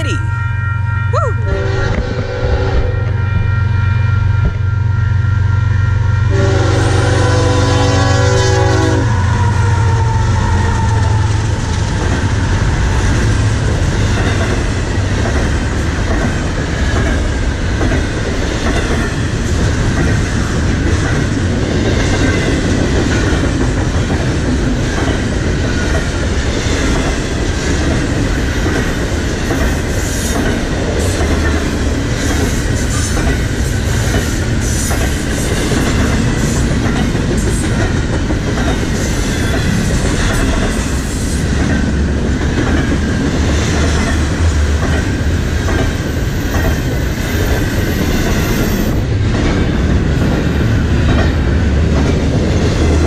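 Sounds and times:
locomotive horn chord: 0.0s - 9.2s
train wheels rumbling on rails: 1.5s - 53.0s.

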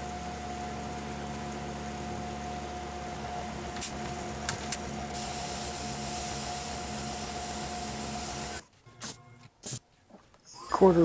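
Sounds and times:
milling machine whine: 0.0s - 8.6s.

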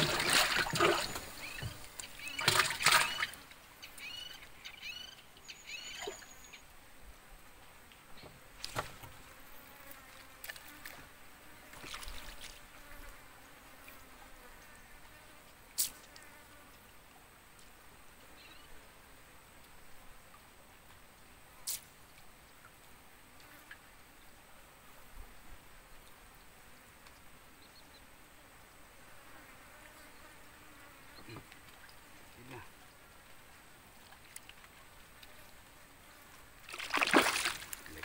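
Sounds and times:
water splashing: 0.0s - 3.5s, 11.7s - 12.6s, 36.6s - 38.0s
faint insect hum: 0.0s - 38.0s
high bird chirps: 1.4s - 6.6s.

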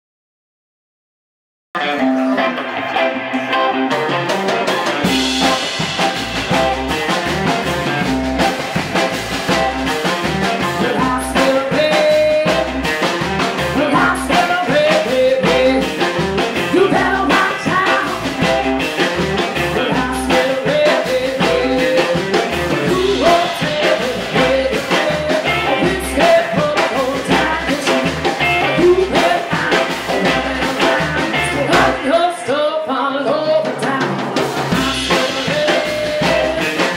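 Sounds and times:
woman singing: 1.8s - 3.1s, 10.8s - 12.7s, 13.8s - 18.6s, 19.7s - 36.9s
drum kit: 1.8s - 32.6s, 33.2s - 36.9s
electric guitar: 1.8s - 36.9s
upright bass: 2.0s - 36.9s.

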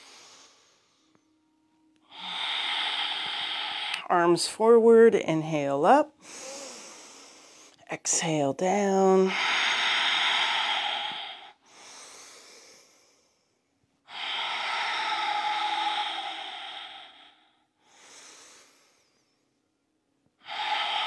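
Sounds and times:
woman breathing in: 0.0s - 1.3s, 2.1s - 4.1s, 6.2s - 7.8s, 9.3s - 19.5s, 20.4s - 21.0s
woman breathing out: 2.1s - 4.1s, 6.2s - 7.8s, 9.3s - 13.4s, 14.1s - 19.4s, 20.4s - 21.0s.

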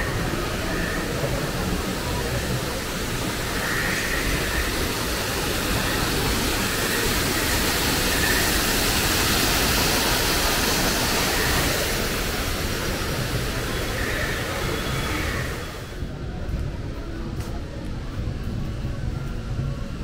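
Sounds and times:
waterfall cascading over rocks: 0.0s - 15.9s.

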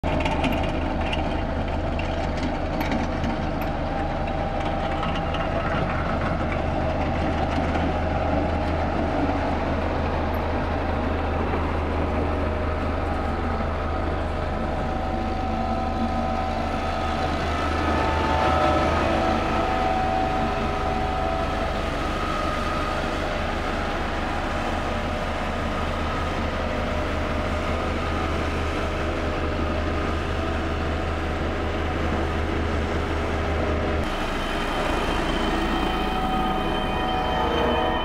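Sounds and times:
road roller diesel engines: 0.0s - 38.0s.

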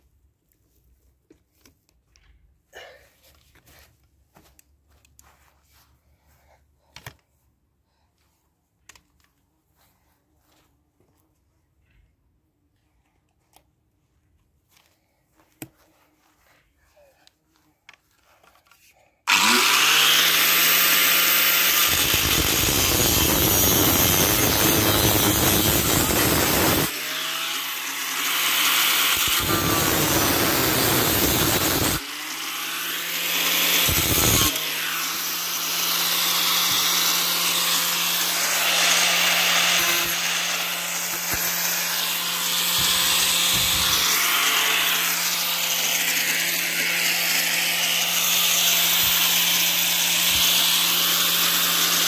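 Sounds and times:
angle grinder cutting metal pipe: 19.3s - 52.0s.

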